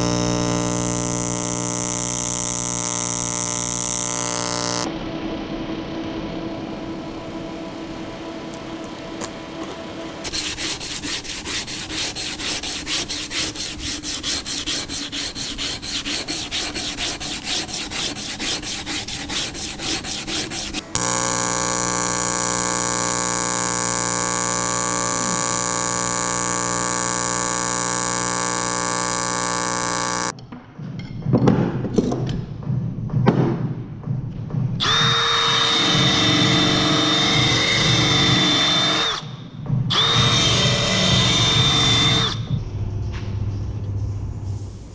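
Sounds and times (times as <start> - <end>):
welding arc buzz: 0.0 - 4.9, 10.2 - 30.4, 34.8 - 42.5
rhythmic rasping strokes: 10.2 - 30.3, 34.8 - 42.6.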